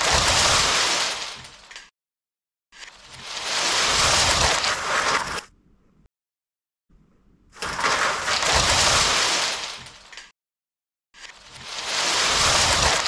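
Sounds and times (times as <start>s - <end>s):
plastic bricks crashing down: 7.6s - 10.3s.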